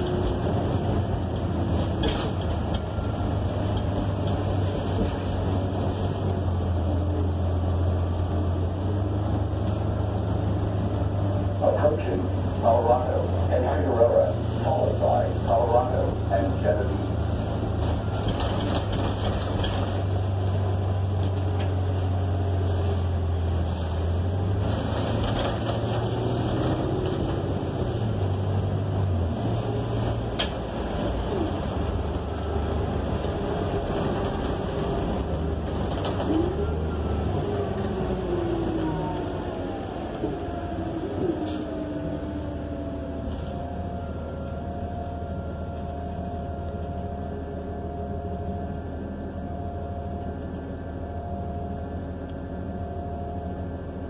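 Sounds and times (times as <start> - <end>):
bus engine drone: 0.0 - 54.0
road noise: 0.0 - 54.0.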